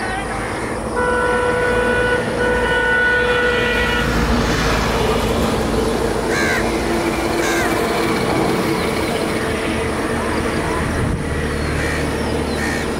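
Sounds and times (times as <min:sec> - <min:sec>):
vehicle horn long note: 0:00.0 - 0:04.4.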